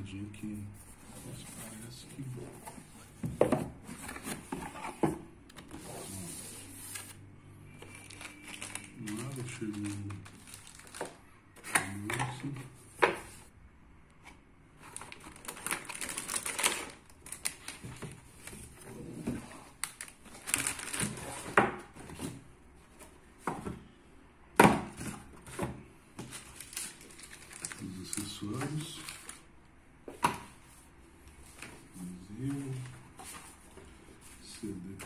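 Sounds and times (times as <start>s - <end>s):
plastic bag rustling: 7.9s - 11.2s, 14.8s - 21.6s, 26.2s - 29.5s.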